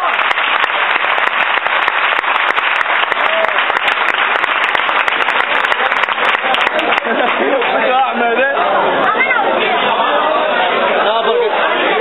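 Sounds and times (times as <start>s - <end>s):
crowd applauding: 0.0s - 9.4s.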